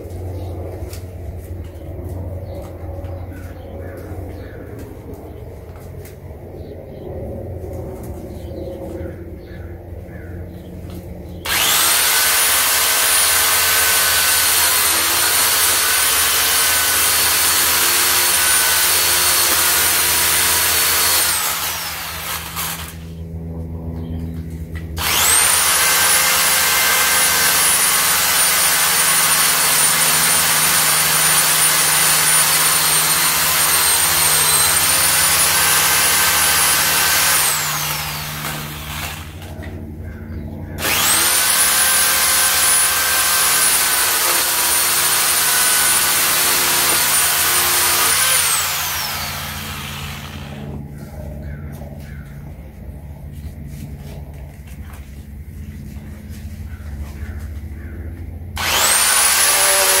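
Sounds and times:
electric chainsaw whining: 0:11.4 - 0:23.2, 0:24.8 - 0:39.8, 0:40.8 - 0:50.8, 0:58.6 - 1:00.0.

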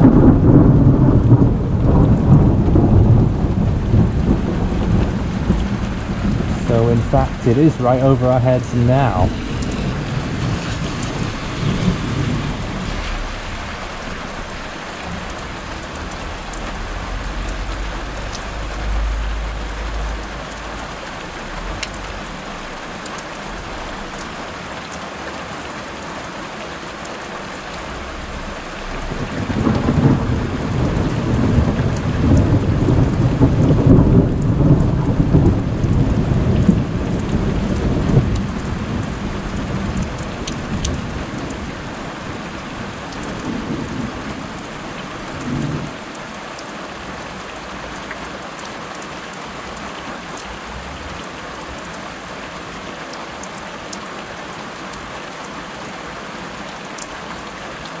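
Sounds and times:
loud peal of thunder: 0:00.0 - 0:15.2, 0:27.9 - 0:38.3
thunder rumbling: 0:00.0 - 0:24.4, 0:27.8 - 0:46.0
steady rain falling: 0:00.0 - 0:58.0.

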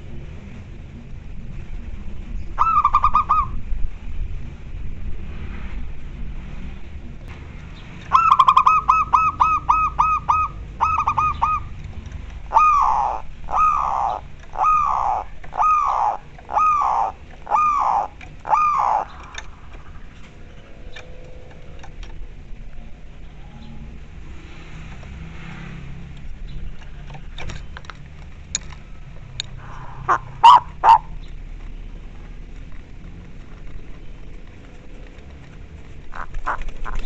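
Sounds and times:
dove cooing: 0:02.6 - 0:03.6, 0:08.1 - 0:11.8, 0:12.4 - 0:21.8, 0:29.6 - 0:31.3, 0:34.9 - 0:37.0.

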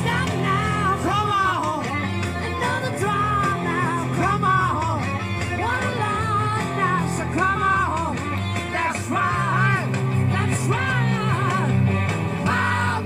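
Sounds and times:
man singing: 0:00.0 - 0:13.0
rock band playing live: 0:00.0 - 0:13.0.

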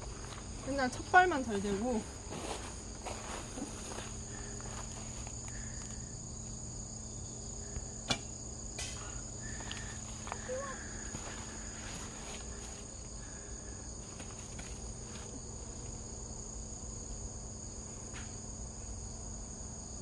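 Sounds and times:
high-pitched insect chorus: 0:00.0 - 0:20.0
bow snapping when shot: 0:08.0 - 0:09.0.

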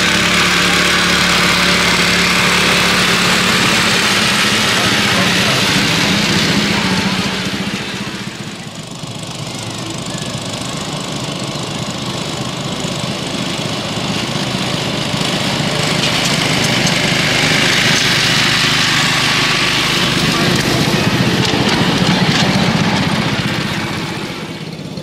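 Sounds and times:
small locomotive engine running: 0:00.0 - 0:25.0.

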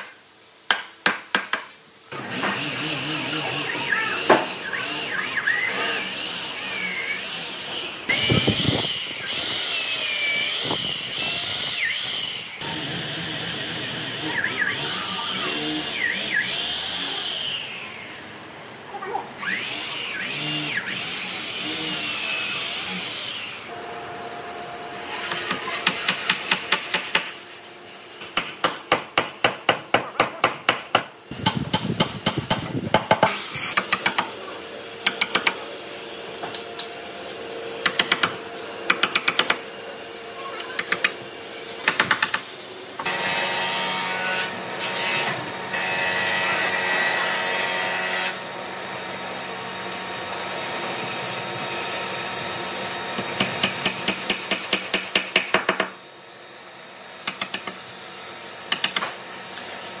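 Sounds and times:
hammer striking wood: 0:00.7 - 0:01.7, 0:28.3 - 0:34.3, 0:37.8 - 0:39.6, 0:53.4 - 0:55.9
power tool running: 0:02.1 - 0:18.8, 0:19.4 - 0:24.0, 0:31.3 - 1:00.0.

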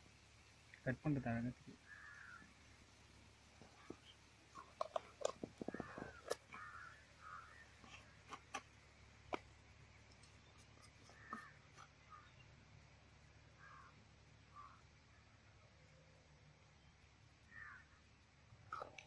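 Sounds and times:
crows cawing faintly: 0:01.8 - 0:02.8, 0:03.6 - 0:08.7, 0:10.5 - 0:12.5, 0:13.4 - 0:15.4, 0:17.4 - 0:18.0
spice containers clicking: 0:04.6 - 0:06.7.

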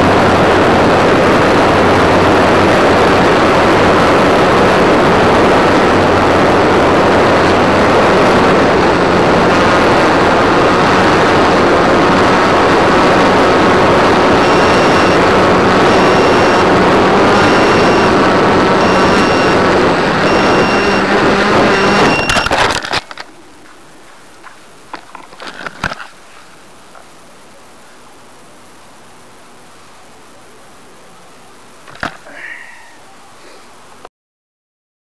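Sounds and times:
wind rush on camera: 0:00.0 - 0:34.1
model airplane motor running: 0:10.3 - 0:22.5
short high beep: 0:14.3 - 0:22.6.

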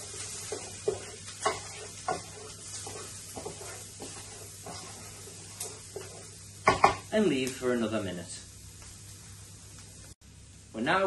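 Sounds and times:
wooden spoon scraping pan: 0:00.0 - 0:06.9
vegetables sizzling in frying pan: 0:00.0 - 0:11.0.

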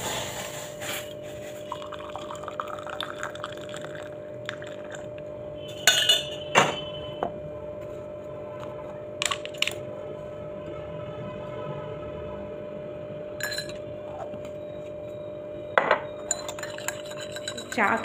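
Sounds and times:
tea pouring into a mug: 0:01.4 - 0:05.1
metal utensils clinking on mug: 0:05.8 - 0:06.4, 0:13.4 - 0:13.8, 0:16.2 - 0:18.0.

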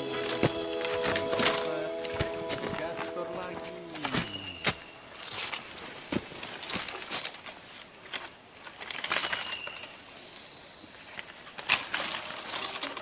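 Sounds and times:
leaves and brush rustling: 0:00.0 - 0:10.2.

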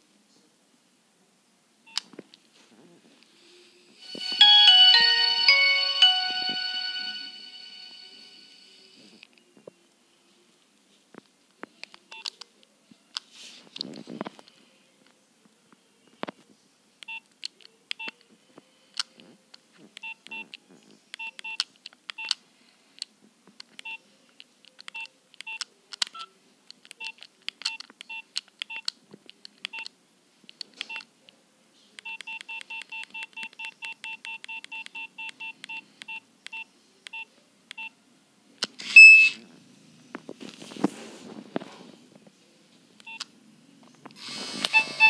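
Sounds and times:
loud phone tone: 0:04.0 - 0:08.7, 0:44.6 - 0:45.0
phone keypad beeps: 0:32.0 - 0:37.9, 0:38.8 - 0:39.4, 0:44.7 - 0:45.0.

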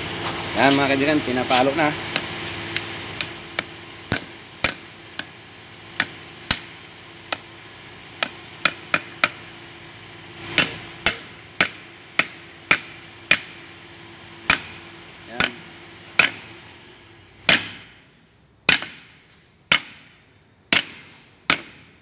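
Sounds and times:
hammer striking metal: 0:02.1 - 0:05.4, 0:06.0 - 0:07.5, 0:08.2 - 0:09.5, 0:10.5 - 0:13.6, 0:14.4 - 0:16.5, 0:17.5 - 0:18.0, 0:18.7 - 0:22.0.

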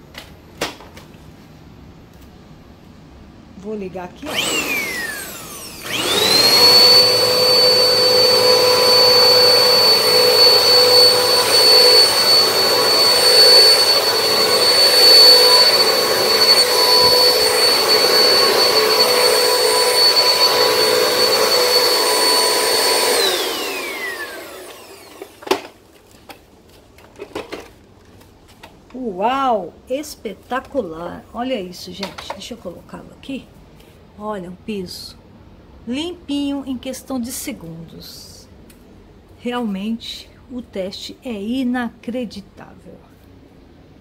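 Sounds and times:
vacuum cleaner motor whining: 0:04.2 - 0:25.8.

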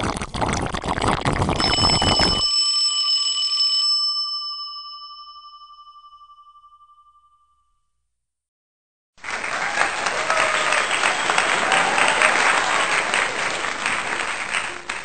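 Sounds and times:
bell-like chime: 0:01.6 - 0:07.9.

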